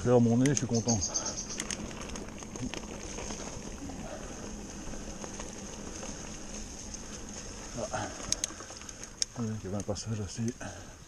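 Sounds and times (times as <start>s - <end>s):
bike tyres rustling over leaves: 0.0s - 11.0s.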